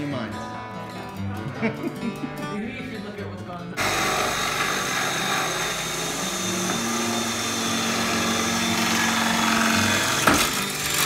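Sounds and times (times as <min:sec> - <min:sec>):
power tool whirring: 0:03.8 - 0:11.0.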